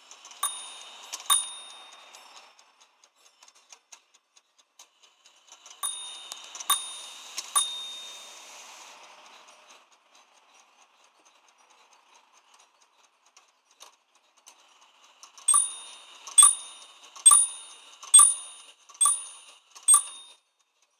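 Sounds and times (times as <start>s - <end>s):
clock ticking: 0.4s - 2.1s, 15.5s - 20.4s
clock bells striking: 0.4s - 2.2s, 5.8s - 8.3s, 15.5s - 20.4s.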